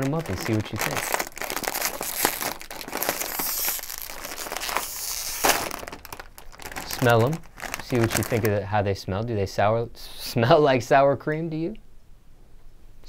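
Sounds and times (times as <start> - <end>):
foil chip bag crackling: 0.0 - 8.8.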